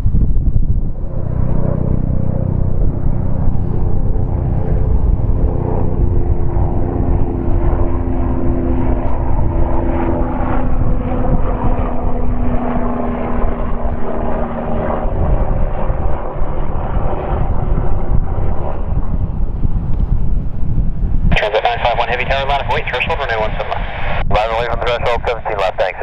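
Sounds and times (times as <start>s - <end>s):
jet engines idling: 21.3s - 26.0s.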